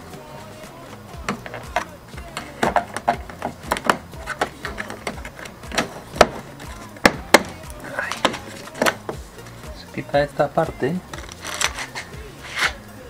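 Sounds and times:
plastic trim clips snapping: 11.1 - 12.8.

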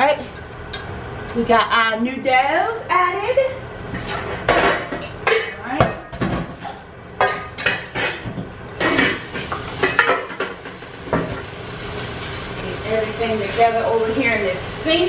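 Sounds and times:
metal pots and pans clattering: 4.0 - 11.4.

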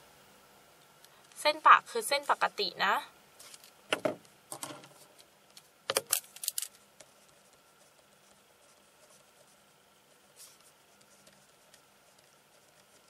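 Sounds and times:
pens clicking and scraping: 5.6 - 6.8.

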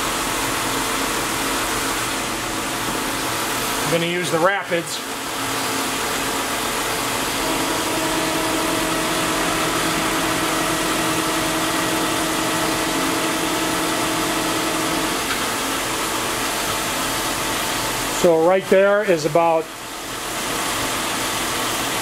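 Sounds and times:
milling machine hum: 0.0 - 22.0
machine whine: 1.9 - 18.4.

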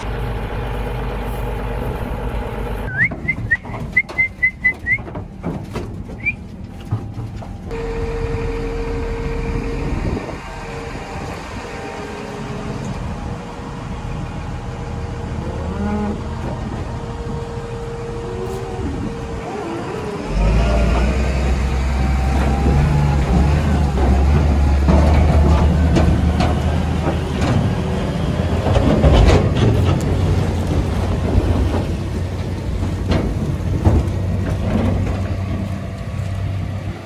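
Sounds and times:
loud low engine rumble: 0.0 - 37.0
knocks in metal trailer: 3.0 - 7.7, 22.3 - 35.7
cattle mooing: 15.3 - 26.1.

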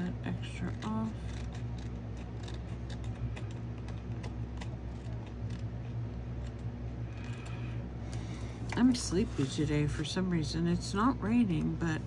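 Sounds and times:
scissors snipping paper: 0.0 - 5.7
steady low hum: 0.0 - 12.0.

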